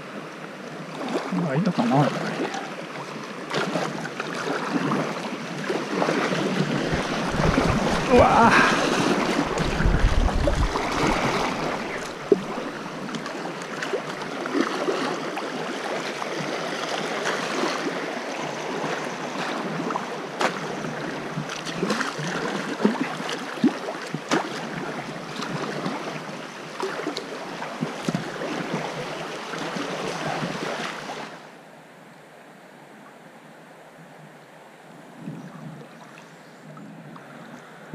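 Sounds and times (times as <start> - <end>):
river water rushing: 0.0 - 31.6
water splashing against hull: 0.9 - 18.1.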